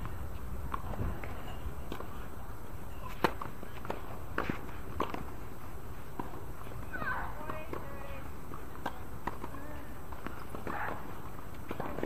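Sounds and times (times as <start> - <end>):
low outdoor background noise: 0.0 - 12.0
racket hitting tennis ball: 3.0 - 5.4, 6.1 - 12.0.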